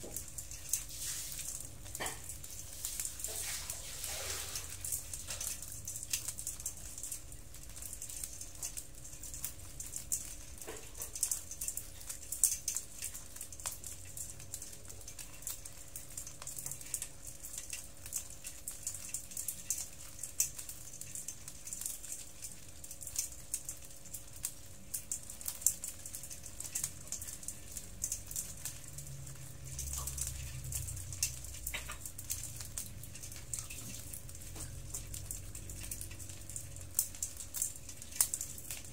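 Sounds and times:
crab shells clicking and rattling: 4.6s - 38.9s.

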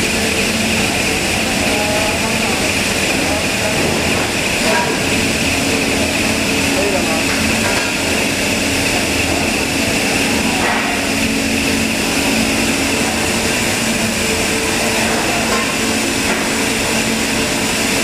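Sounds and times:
machine whirring hum: 0.0s - 18.0s.

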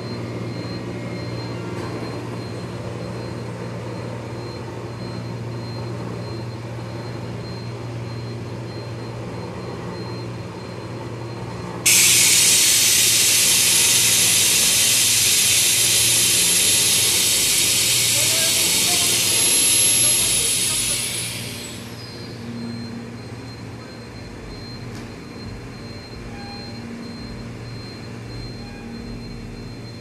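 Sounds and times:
machine low hum: 0.0s - 30.0s
loud steady hiss: 11.9s - 22.0s.

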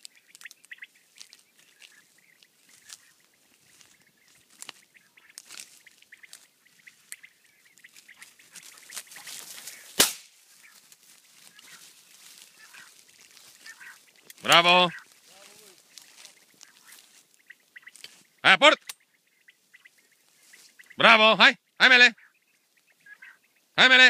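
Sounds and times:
rustling in tall grass: 0.0s - 18.4s, 19.1s - 21.2s
faint bird calls: 0.0s - 24.0s
shotgun shot: 9.9s - 10.4s.

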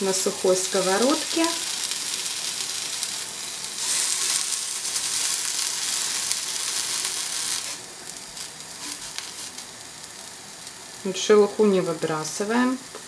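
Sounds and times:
onions sizzling in a frying pan: 0.0s - 13.0s.

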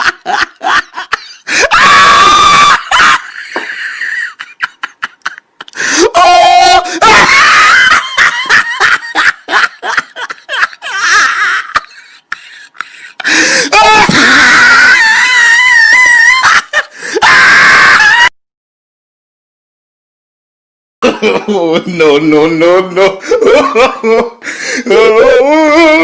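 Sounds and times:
people screaming and laughing: 0.0s - 18.3s.

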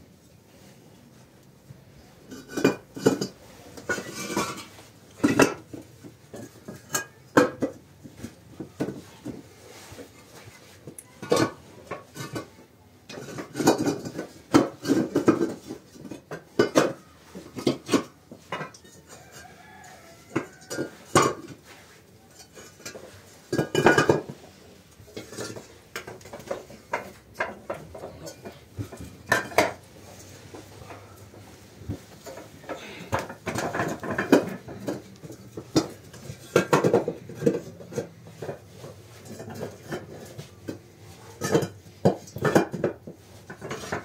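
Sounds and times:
bricks clacking together: 32.7s - 38.6s.

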